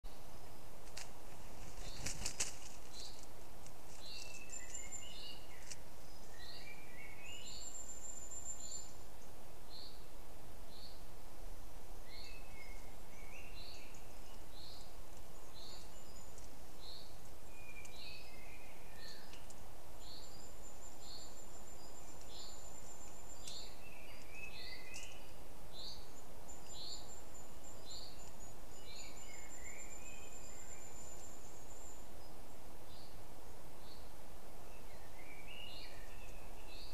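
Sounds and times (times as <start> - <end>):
faint outdoor hiss: 0.0 - 36.9
birds chirping: 0.1 - 11.1, 12.0 - 33.2.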